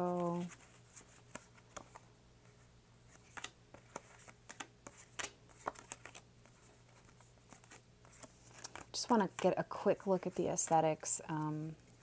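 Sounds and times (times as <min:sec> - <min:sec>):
cards being shuffled: 0:00.0 - 0:02.0, 0:03.1 - 0:09.6.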